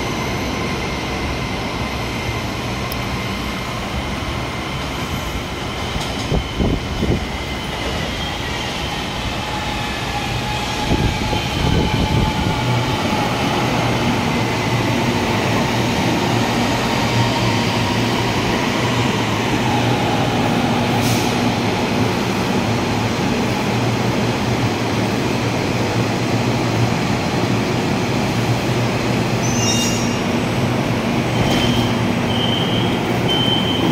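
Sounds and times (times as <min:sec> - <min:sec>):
train electric hum and whine: 0:00.0 - 0:33.9
short high beeps: 0:32.3 - 0:33.9.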